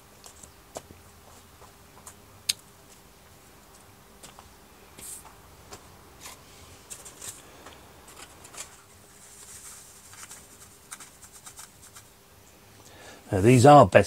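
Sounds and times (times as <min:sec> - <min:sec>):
seed packet clicks and rustles: 0:06.9 - 0:12.1.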